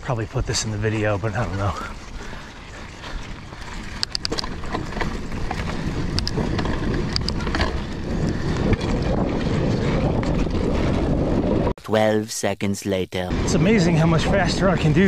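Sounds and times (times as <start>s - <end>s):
bike tyre and wind noise: 0.0s - 11.8s, 13.3s - 15.0s
bike clicks and rattles: 1.2s - 11.7s.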